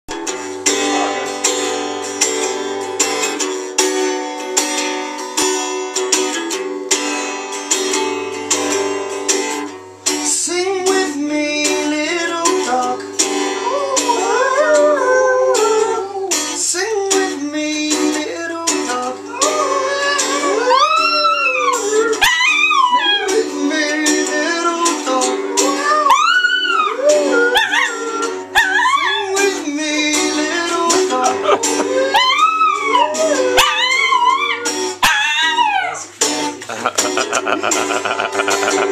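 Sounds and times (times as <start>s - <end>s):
acoustic guitar strumming: 0.1s - 35.1s, 36.0s - 38.9s
man singing: 10.2s - 13.1s, 16.6s - 21.9s, 22.9s - 26.1s, 29.1s - 32.2s, 36.2s - 38.9s
dog howling: 13.6s - 16.4s, 19.3s - 23.5s, 25.4s - 29.5s, 31.4s - 36.1s.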